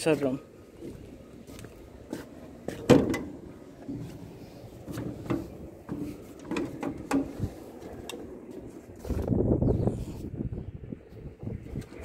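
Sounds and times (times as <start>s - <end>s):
latch and panel rattling: 2.7s - 4.1s, 4.9s - 7.4s.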